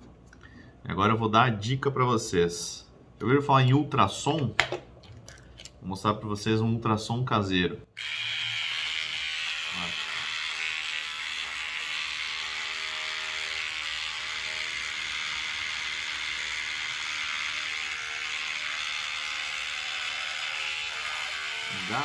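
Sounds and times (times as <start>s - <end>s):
electric shaver running: 8.0s - 22.0s.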